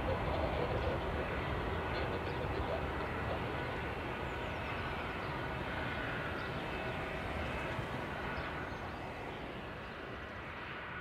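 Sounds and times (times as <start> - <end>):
jet aircraft climbing: 0.0 - 11.0.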